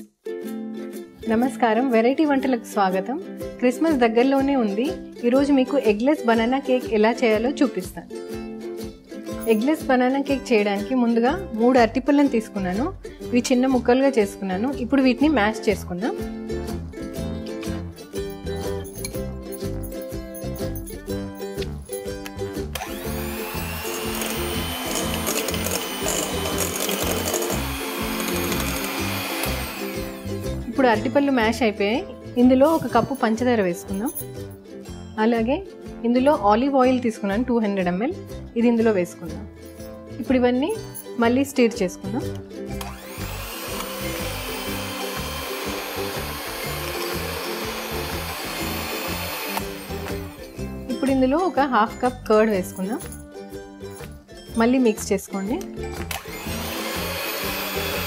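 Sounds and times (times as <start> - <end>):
background music: 0.0 - 58.0
electric hand mixer whining: 22.7 - 30.6, 42.8 - 50.7, 56.0 - 58.0
beaters clicking in glass bowl: 24.0 - 29.6.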